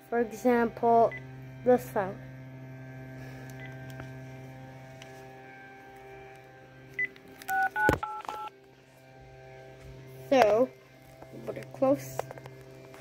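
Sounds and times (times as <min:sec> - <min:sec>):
telephone line hum: 0:00.0 - 0:13.0
two-tone dialling tones: 0:07.0 - 0:08.5.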